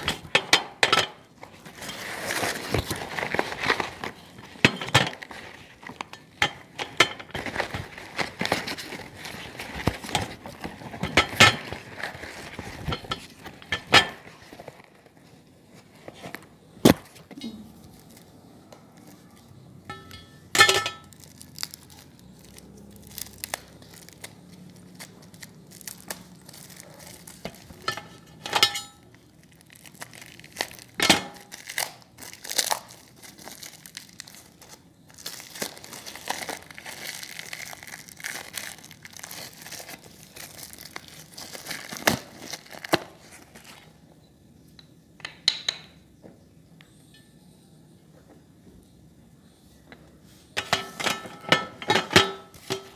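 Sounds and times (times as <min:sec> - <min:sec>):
plastic wrappers crinkling and tearing: 0:01.2 - 0:15.3, 0:17.0 - 0:19.8, 0:20.6 - 0:44.0.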